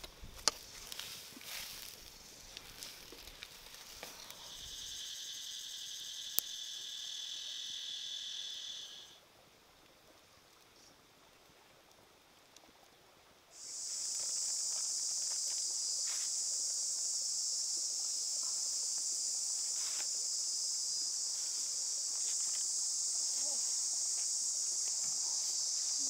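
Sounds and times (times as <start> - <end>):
high-pitched insect drone: 4.0 - 9.2, 13.6 - 26.0.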